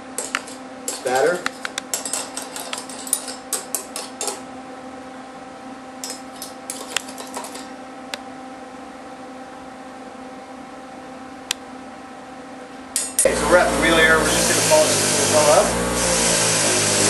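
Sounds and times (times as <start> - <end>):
metal tool scraping and clicking: 0.2 - 4.4, 6.0 - 7.7
steady low hum: 7.7 - 17.0.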